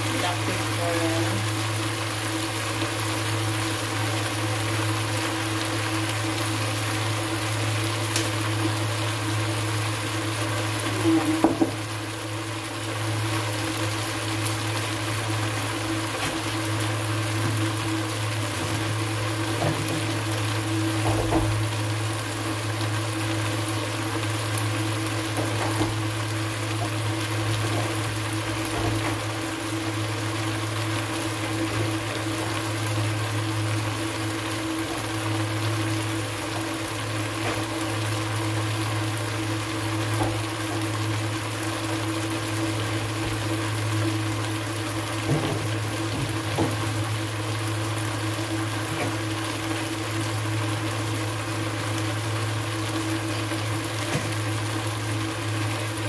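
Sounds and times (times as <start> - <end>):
low mechanical hum: 0.0 - 56.0.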